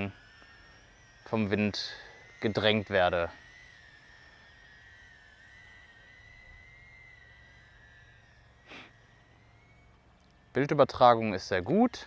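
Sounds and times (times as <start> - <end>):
drone motors whining: 0.0 - 12.0
soft puff of noise: 8.6 - 9.0.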